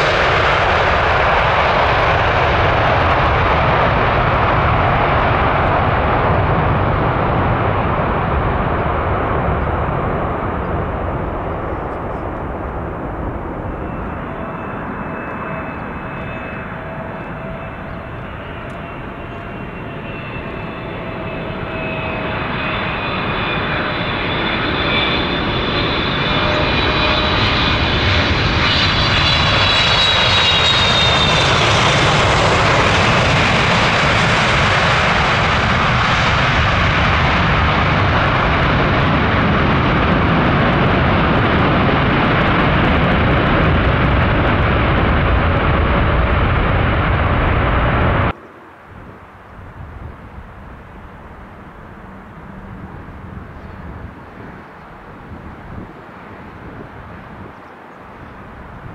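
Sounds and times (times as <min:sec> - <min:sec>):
jet engines roaring: 0:00.0 - 0:58.9.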